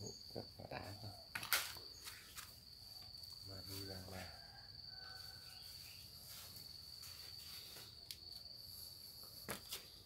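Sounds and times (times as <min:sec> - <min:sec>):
insect trilling: 0:00.0 - 0:10.0.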